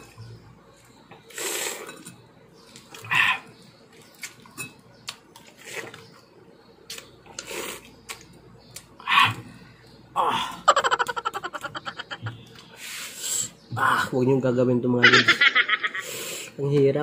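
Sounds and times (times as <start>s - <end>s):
wet chewing and sucking: 6.8s - 9.4s.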